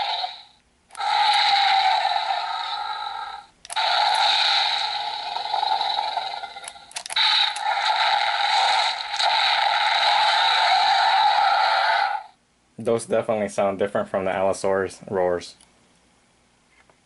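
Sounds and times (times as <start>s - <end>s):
toy dinosaur roars through speaker: 0.0s - 0.4s, 1.0s - 12.3s
toy clicks: 3.6s - 7.8s.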